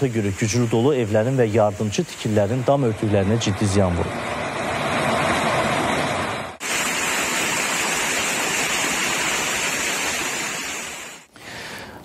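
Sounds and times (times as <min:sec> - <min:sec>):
heavy hail and rain: 0:06.6 - 0:12.0.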